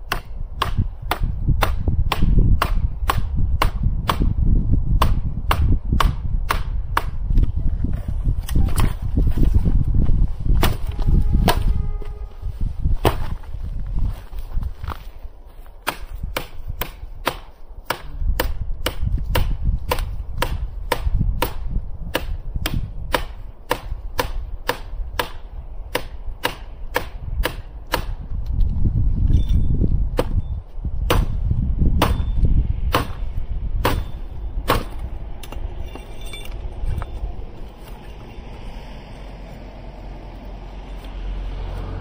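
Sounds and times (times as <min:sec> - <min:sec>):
knife chopping firewood: 0:00.0 - 0:04.4, 0:05.0 - 0:07.5, 0:10.6 - 0:11.6, 0:13.0 - 0:13.4, 0:15.7 - 0:28.3, 0:30.1 - 0:30.4, 0:31.1 - 0:31.3, 0:32.9 - 0:33.2, 0:33.8 - 0:35.7.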